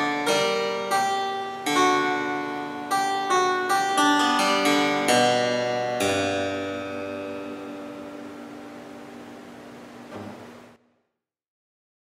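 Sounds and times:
harpsichord playing: 0.0s - 9.6s.

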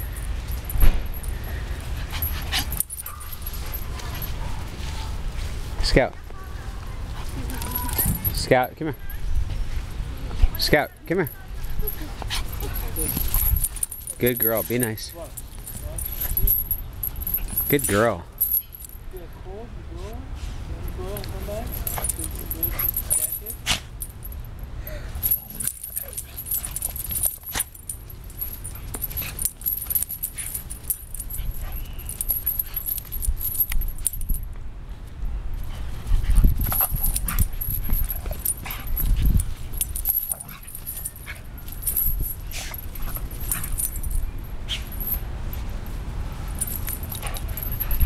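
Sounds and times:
dogs scuffling on grass: 1.6s - 10.6s.

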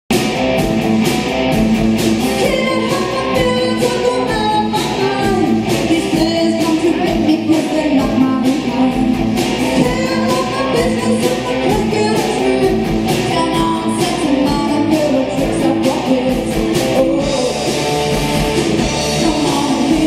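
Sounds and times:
rock band playing live: 0.1s - 20.0s
person singing: 2.3s - 17.9s, 18.8s - 20.0s.

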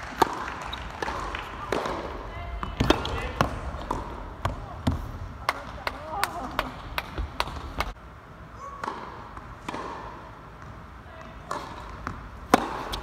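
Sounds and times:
racket hitting tennis ball: 0.1s - 5.2s, 8.7s - 10.8s, 11.4s - 13.0s
tennis ball bounces: 0.1s - 6.0s, 8.8s - 13.0s.

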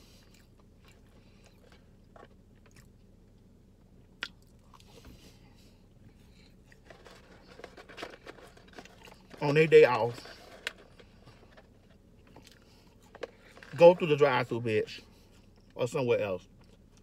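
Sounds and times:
person chewing fries: 0.0s - 9.4s, 10.2s - 13.7s, 16.4s - 17.0s.

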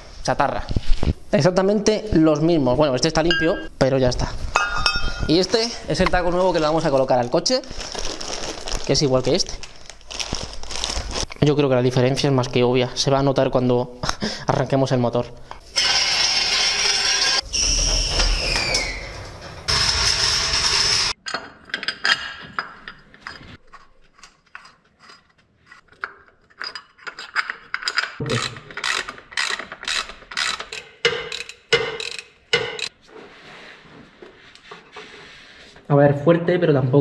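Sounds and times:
power tool whirring: 15.8s - 17.8s, 19.7s - 21.2s
hand ratchet clicking: 27.9s - 32.9s.

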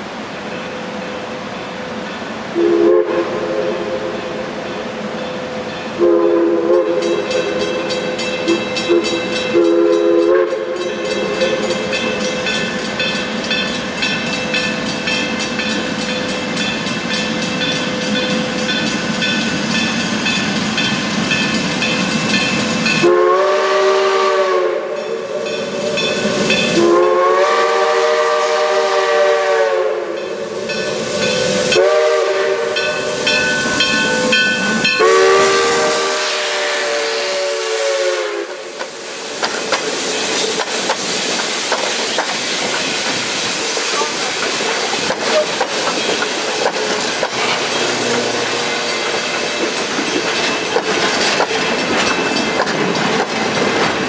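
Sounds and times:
moving train noise: 0.0s - 54.0s
steam locomotive whistle: 2.6s - 4.5s, 5.9s - 12.6s, 22.8s - 39.3s, 47.2s - 49.9s.

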